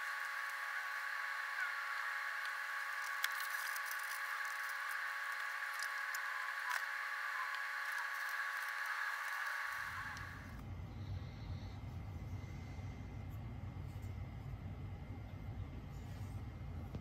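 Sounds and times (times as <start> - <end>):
steady high hum: 0.0 - 17.0
small clicks: 2.4 - 10.3.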